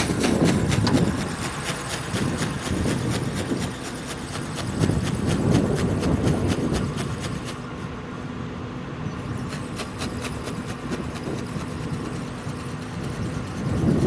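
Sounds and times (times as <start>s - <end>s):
quick ticks: 0.0s - 7.6s
rumbling noise: 0.0s - 7.7s
wind buffeting microphone: 0.0s - 7.9s, 9.0s - 14.0s.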